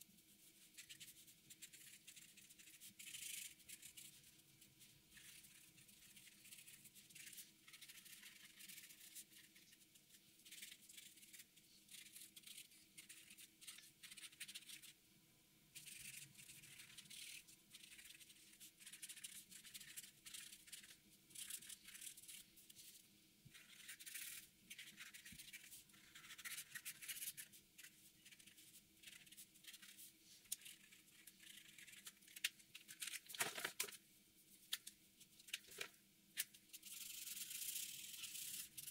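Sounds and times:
felt-tip marker scratching on paper: 0:00.5 - 0:04.3, 0:05.1 - 0:09.8, 0:10.4 - 0:14.9, 0:15.8 - 0:22.4, 0:23.5 - 0:32.4.

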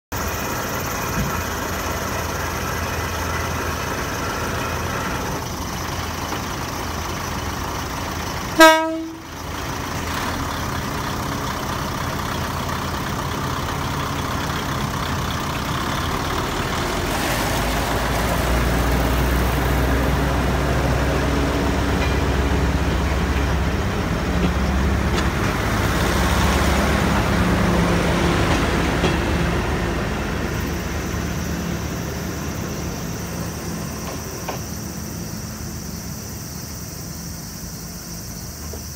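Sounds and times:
diesel engine rumbling: 0:00.1 - 0:38.9
railcar horn toot: 0:08.5 - 0:09.4.

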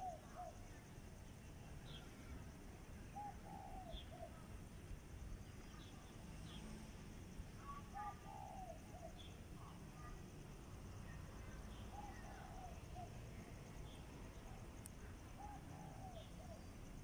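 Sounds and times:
dove cooing: 0:00.0 - 0:00.6, 0:03.2 - 0:04.4, 0:07.7 - 0:09.2, 0:15.4 - 0:16.6.

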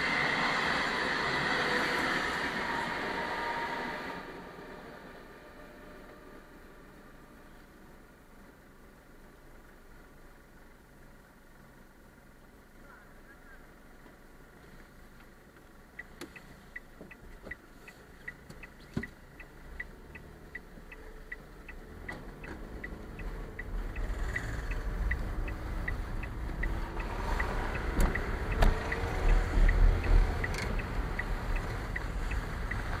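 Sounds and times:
car engine and tyre rumble: 0:00.0 - 0:33.0
turn signal ticking: 0:13.6 - 0:33.0.

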